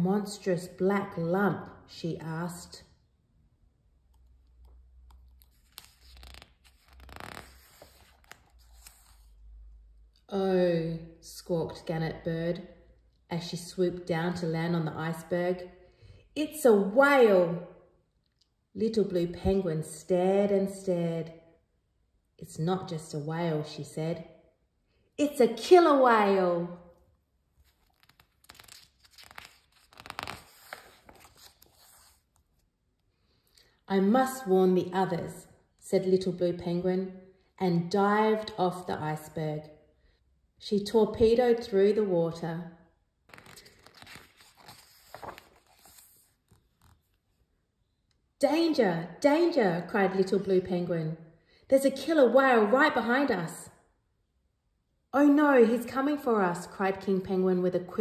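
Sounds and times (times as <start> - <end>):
paper page rustling: 5.4 - 9.4, 27.5 - 32.7, 43.3 - 47.4.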